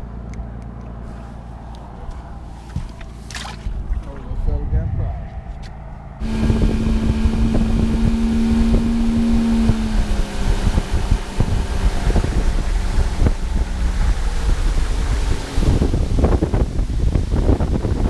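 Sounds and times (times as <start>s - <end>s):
wind buffeting microphone: 1.6s - 18.0s
water rushing past hull: 2.2s - 4.3s, 6.2s - 18.0s
outboard motor running: 6.0s - 18.0s.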